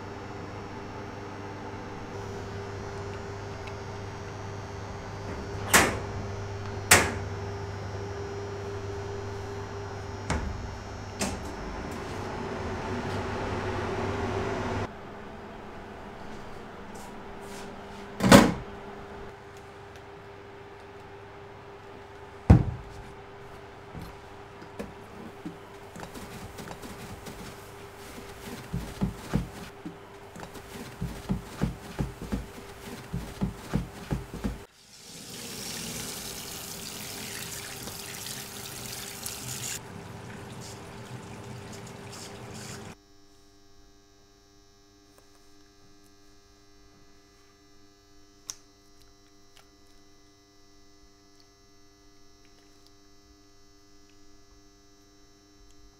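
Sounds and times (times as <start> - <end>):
electrical hum: 0.0 - 55.9
running water: 34.4 - 43.0
click: 48.4 - 49.7.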